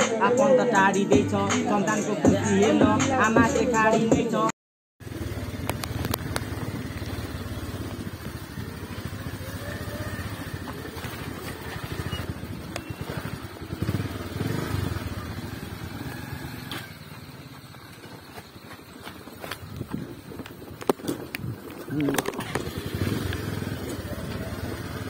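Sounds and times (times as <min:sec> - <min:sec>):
motorcycle engine running: 0:05.0 - 0:25.0.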